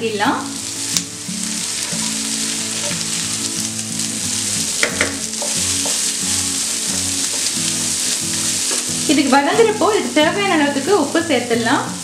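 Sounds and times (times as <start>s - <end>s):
vegetables sizzling in a frying pan: 0.0s - 12.0s
spatula knocking on pan: 4.8s - 6.1s.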